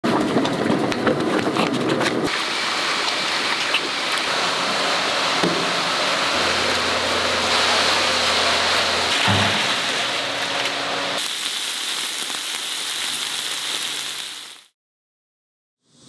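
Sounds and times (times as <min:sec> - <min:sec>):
running and splashing water: 0:02.3 - 0:14.5.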